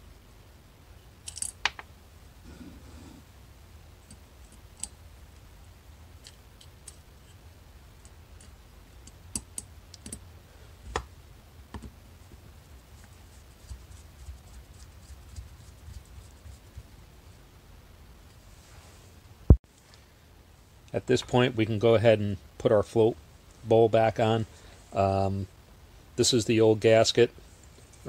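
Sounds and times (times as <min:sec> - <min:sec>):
small metallic clicks: 0:01.2 - 0:01.8.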